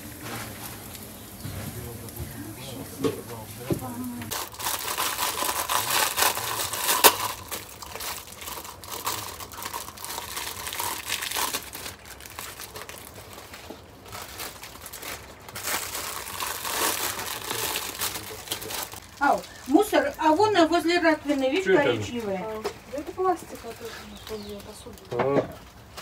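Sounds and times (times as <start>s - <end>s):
leaves rustling and crinkling: 0.0s - 26.0s
sharp crack: 4.2s - 13.0s.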